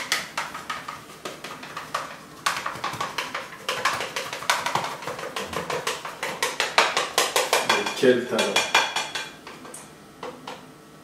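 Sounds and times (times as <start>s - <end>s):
glass bowl knocking and clinking: 6.5s - 9.4s.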